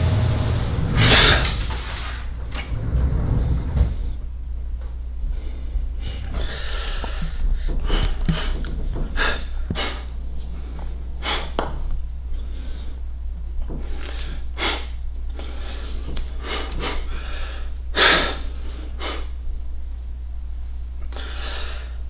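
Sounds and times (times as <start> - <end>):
steady low hum: 0.0 - 22.0
man breathing forcefully: 0.8 - 1.9, 5.2 - 11.6, 13.7 - 19.4, 21.1 - 22.0.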